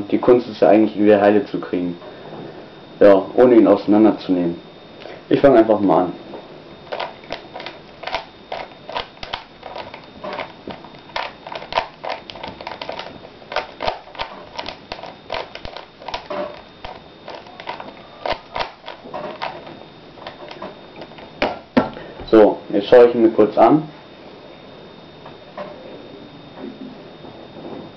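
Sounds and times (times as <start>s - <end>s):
puzzle cube clicking: 6.9s - 10.5s.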